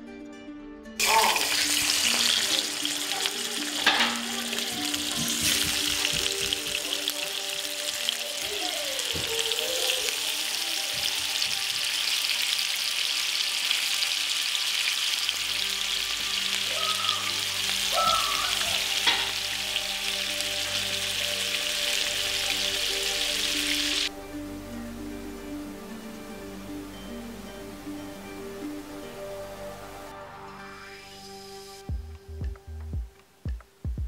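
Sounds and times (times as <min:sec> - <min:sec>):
fish sizzling in oil: 0:01.0 - 0:24.1.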